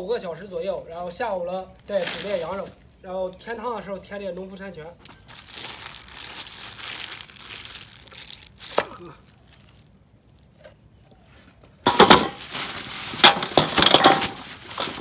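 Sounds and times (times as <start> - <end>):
plastic bags crinkling: 1.8 - 2.8, 5.0 - 10.0, 11.9 - 15.0.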